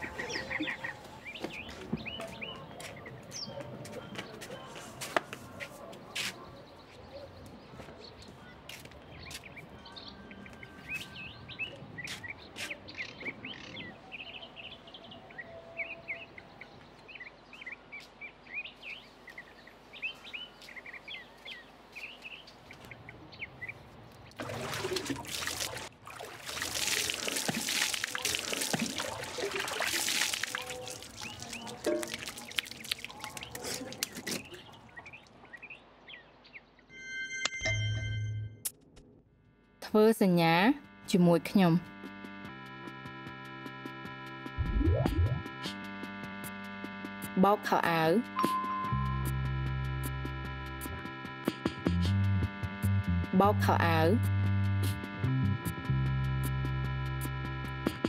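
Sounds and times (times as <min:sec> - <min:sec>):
small birds chirping: 0:00.0 - 0:04.8, 0:06.0 - 0:24.4, 0:30.3 - 0:36.9
water pouring and splashing: 0:24.3 - 0:35.4.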